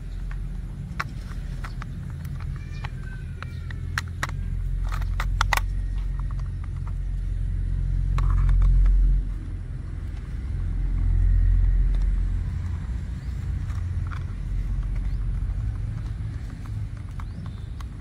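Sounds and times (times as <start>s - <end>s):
loud low rumble: 0.0s - 18.0s
plastic toy clicks: 0.2s - 9.2s, 13.4s - 18.0s.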